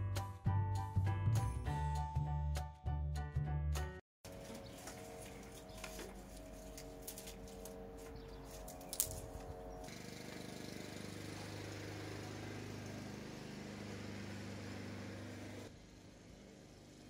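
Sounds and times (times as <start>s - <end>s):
motor humming: 6.4s - 17.0s.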